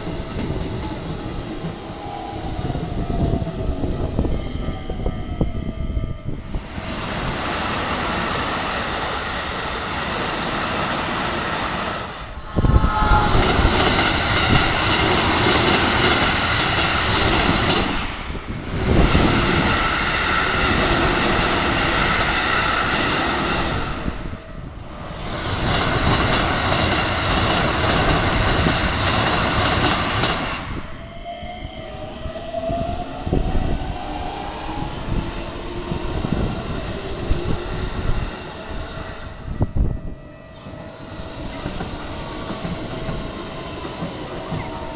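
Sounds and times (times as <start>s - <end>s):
train wheels rumbling on rails: 0.0s - 44.9s
crossing bell ringing: 3.8s - 7.4s, 38.7s - 42.3s
rising motor whine: 12.3s - 15.4s.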